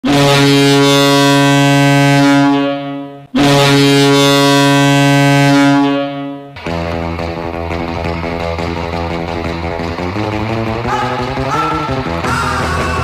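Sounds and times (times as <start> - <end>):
goal horn blasts: 0.0 - 6.6.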